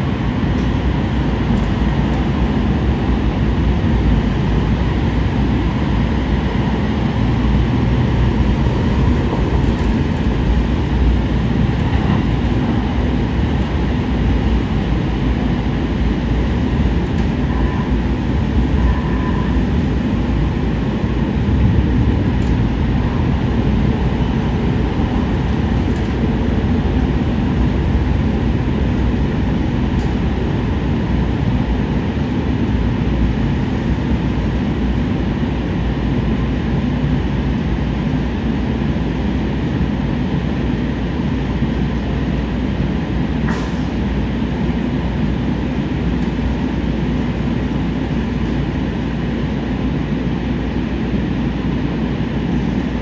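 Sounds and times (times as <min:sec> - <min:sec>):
train wheels rumbling on rails: 0:00.0 - 0:53.0.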